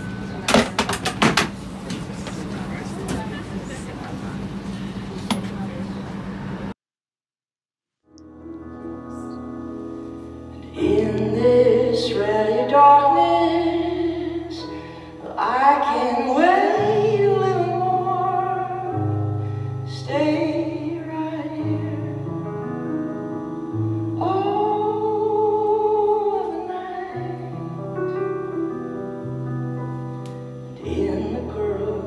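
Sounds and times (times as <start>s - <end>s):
low keyboard chords: 8.1s - 32.0s.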